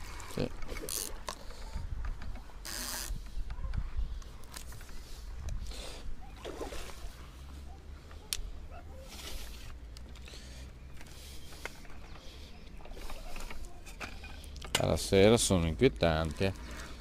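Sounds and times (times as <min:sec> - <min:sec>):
fishing tackle clicks and knocks: 0:00.5 - 0:05.6.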